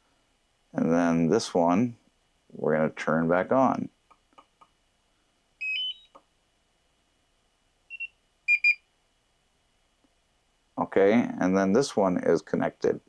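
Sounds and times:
electronic beeps: 5.6s - 6.2s, 7.9s - 8.8s.

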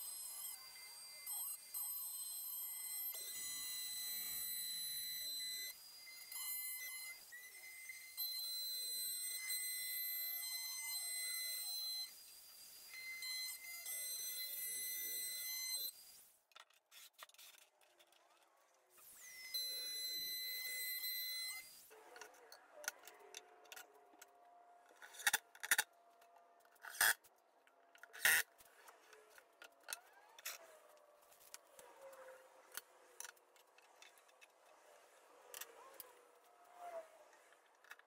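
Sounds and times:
router motor high whine: 0.0s - 16.3s, 19.0s - 24.5s.

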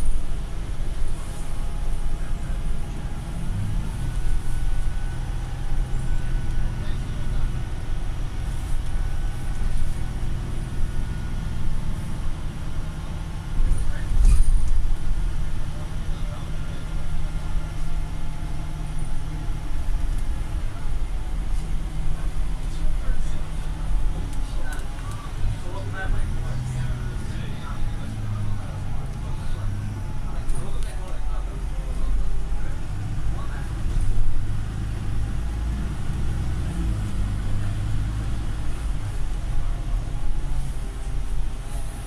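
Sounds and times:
bus engine rumble: 0.0s - 42.0s.

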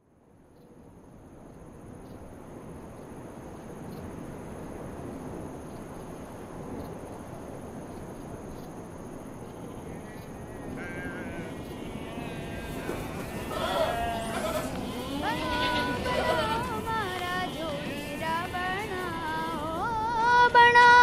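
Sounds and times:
high insect drone: 0.3s - 21.0s
steady rushing noise: 1.2s - 21.0s
faint wavering calls: 9.7s - 21.0s.

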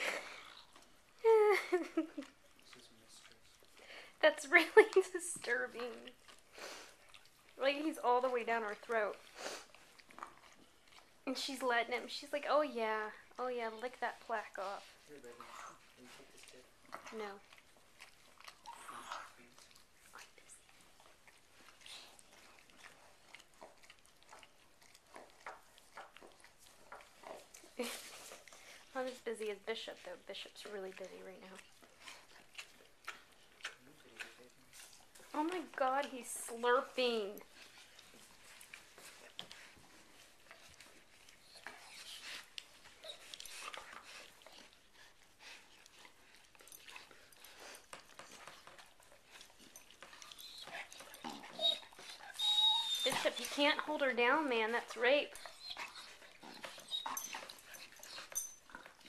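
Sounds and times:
dog licking wet smacking: 1.8s - 4.2s, 14.2s - 36.3s, 36.9s - 59.0s.

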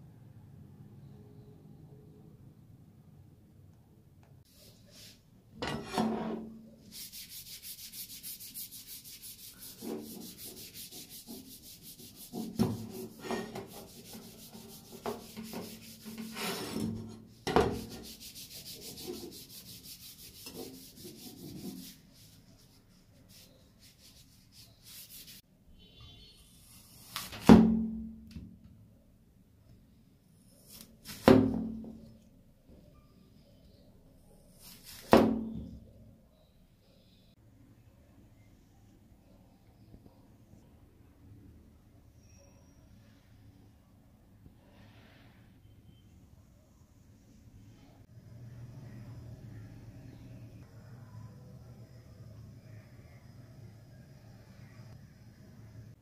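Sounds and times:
hand rubbing wooden handle: 6.8s - 16.8s, 17.7s - 25.4s.

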